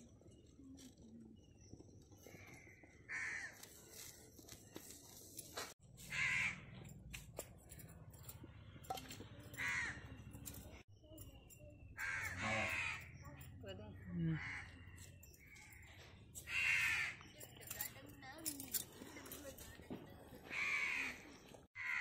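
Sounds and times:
crow cawing: 0:02.4 - 0:03.6, 0:06.1 - 0:06.7, 0:09.6 - 0:10.1, 0:12.0 - 0:13.1, 0:14.3 - 0:15.0, 0:16.4 - 0:17.2, 0:20.5 - 0:21.2, 0:21.8 - 0:22.0.

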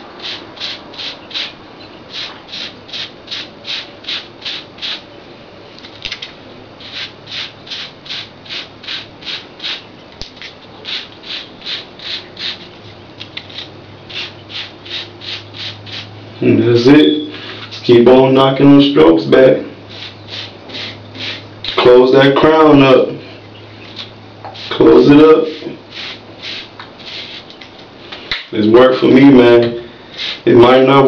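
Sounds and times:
brush scratching through hair: 0:00.0 - 0:05.0, 0:06.8 - 0:09.8, 0:10.4 - 0:12.8, 0:13.4 - 0:16.1, 0:19.9 - 0:21.4, 0:23.8 - 0:27.7, 0:30.1 - 0:30.5.

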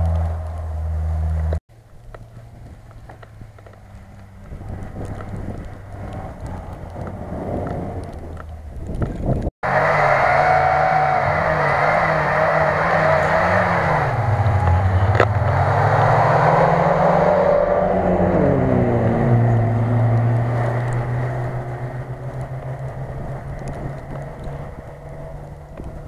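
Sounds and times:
car engine revving: 0:00.0 - 0:01.6, 0:09.6 - 0:26.0
wind noise: 0:00.0 - 0:09.5, 0:11.1 - 0:26.0.

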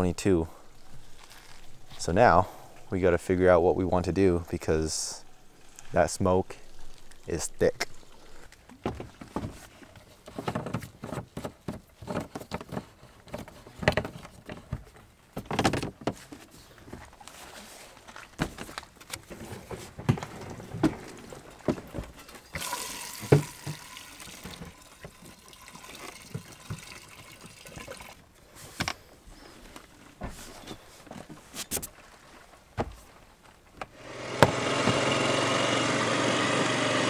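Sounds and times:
fuel pouring into tank: 0:22.4 - 0:28.2
gas can clicks and knocks: 0:22.6 - 0:25.2.

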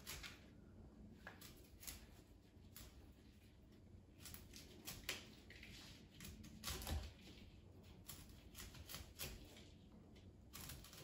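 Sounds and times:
knife cutting broccoli on board: 0:04.1 - 0:09.8.

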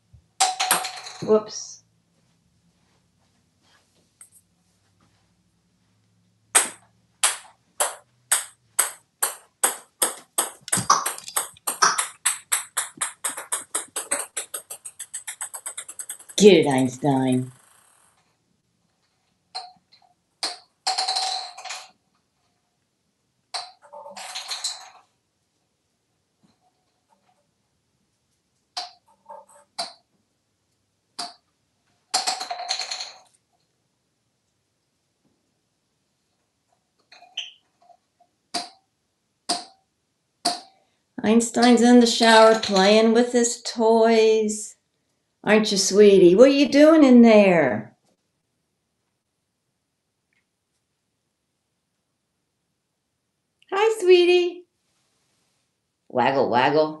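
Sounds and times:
small ball bouncing with ping: 0:00.4 - 0:01.3, 0:06.5 - 0:16.4, 0:19.5 - 0:21.8, 0:23.5 - 0:25.0, 0:28.8 - 0:30.1, 0:31.2 - 0:31.5, 0:38.5 - 0:38.8, 0:39.5 - 0:39.8, 0:40.4 - 0:40.7
plastic toys knocking on tile: 0:06.6 - 0:16.4.

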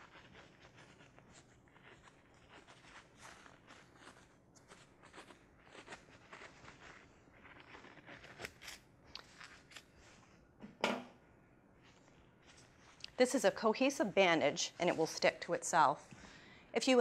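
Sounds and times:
bandage being wrapped: 0:00.0 - 0:10.4
rustling of plastic gloves: 0:00.0 - 0:10.5, 0:11.7 - 0:16.1.

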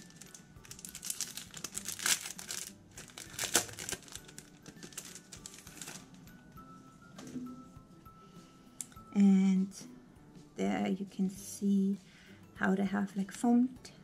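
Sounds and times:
packaging crinkling: 0:00.0 - 0:06.2.

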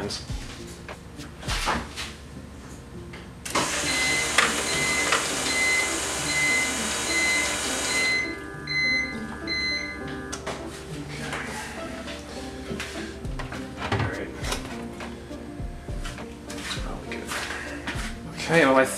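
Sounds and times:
electric fuel pump whine: 0:03.4 - 0:10.6.

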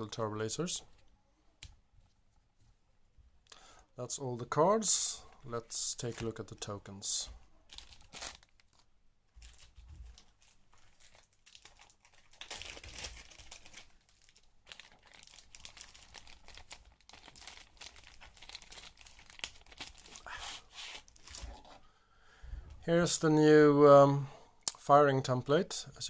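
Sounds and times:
plastic bag crinkling: 0:07.6 - 0:21.8.

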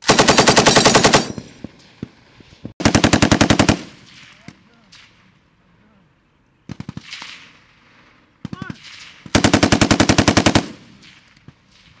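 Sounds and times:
machine gun firing bursts: 0:00.0 - 0:01.5, 0:02.8 - 0:04.2, 0:09.3 - 0:11.2.

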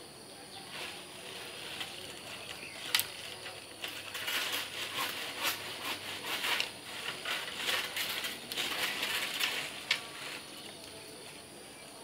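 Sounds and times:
leafy branches rustling: 0:00.5 - 0:12.0
twig snapping: 0:02.5 - 0:03.3.

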